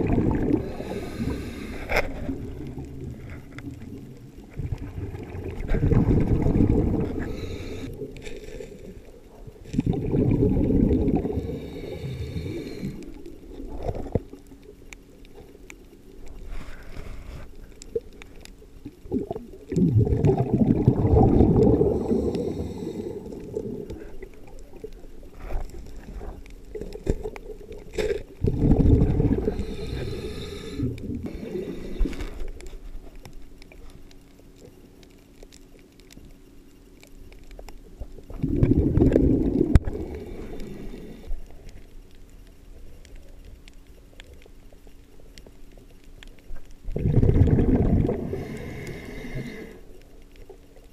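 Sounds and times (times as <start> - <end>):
bubbling exhaled air underwater: 0.0 - 14.7, 17.9 - 32.7, 37.9 - 41.6, 46.8 - 50.0
regulator inhalation hiss: 0.6 - 2.3, 7.1 - 8.0, 11.3 - 13.2, 21.8 - 23.8, 29.5 - 32.4, 39.8 - 41.6, 48.2 - 50.0.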